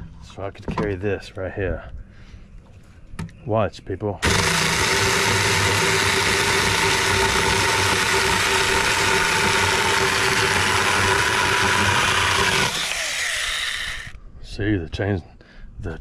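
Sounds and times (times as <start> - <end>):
electric chainsaw cutting wood: 4.2 - 14.2.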